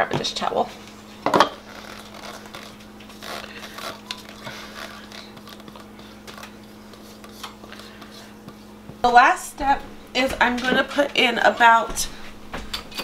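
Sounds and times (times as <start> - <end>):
steady low hum: 0.0 - 13.0
spatula scraping bowl: 1.5 - 11.7.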